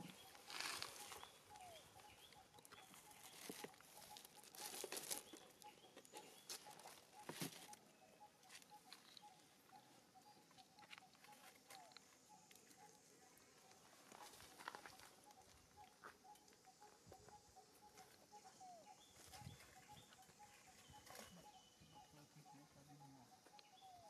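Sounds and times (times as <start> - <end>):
faint rustles and clicks: 0.0 - 7.8
faint bird chirps: 0.0 - 24.0.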